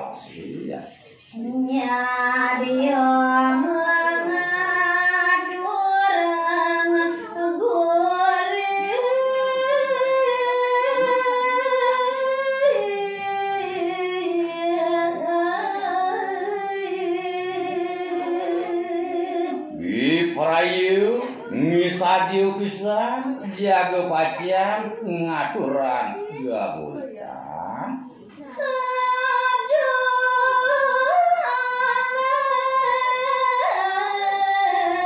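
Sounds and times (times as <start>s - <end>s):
woman singing unaccompanied: 1.3s - 19.8s, 27.1s - 35.0s.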